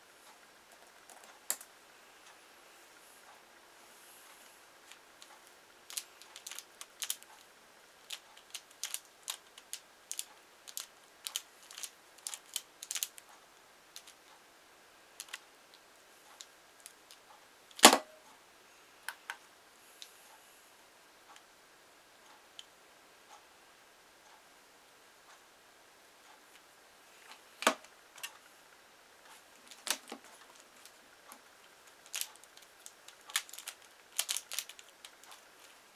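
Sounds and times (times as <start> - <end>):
puzzle being turned clicking: 5.9 - 7.4, 8.0 - 13.2, 14.0 - 14.2, 15.2 - 15.4, 31.9 - 35.8.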